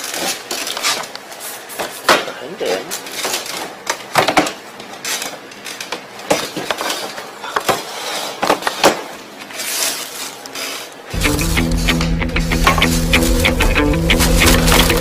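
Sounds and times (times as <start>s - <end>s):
plastic bag rustling: 0.0s - 2.0s, 4.9s - 12.0s, 12.6s - 15.0s
plastic crates knocking: 12.5s - 15.0s.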